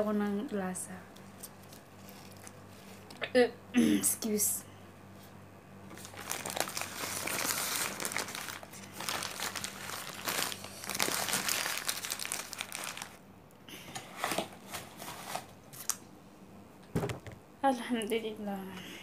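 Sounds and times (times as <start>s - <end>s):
paper and plastic bag crinkling: 1.4s - 3.0s, 5.9s - 13.2s, 14.1s - 16.0s.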